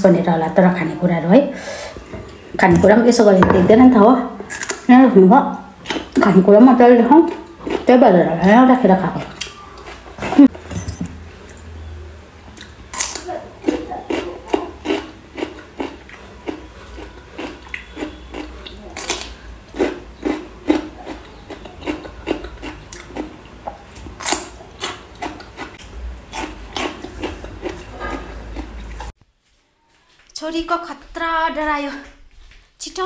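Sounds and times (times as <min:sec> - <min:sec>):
chewing and biting: 0:12.6 - 0:29.1.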